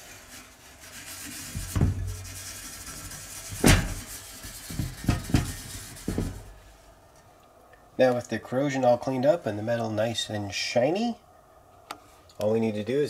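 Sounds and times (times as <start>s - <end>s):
cloth rubbing on metal: 0.0s - 6.9s
sheet-metal chassis knocks: 1.6s - 6.6s.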